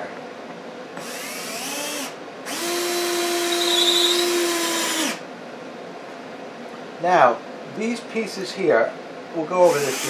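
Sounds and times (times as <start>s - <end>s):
cordless drill driving screws: 1.0s - 5.2s, 9.7s - 10.0s.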